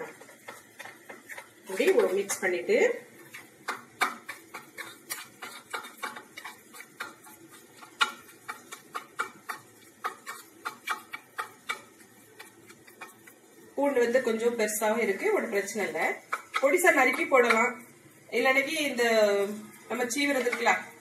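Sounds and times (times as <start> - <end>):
metal spoon scraping a bowl: 0.0 - 2.6, 3.2 - 13.4.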